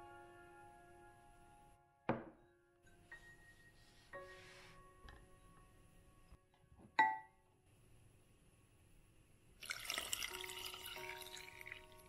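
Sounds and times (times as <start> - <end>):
soft piano music: 0.0 - 7.5, 10.0 - 12.0
liquid pouring into bowl: 9.6 - 12.0.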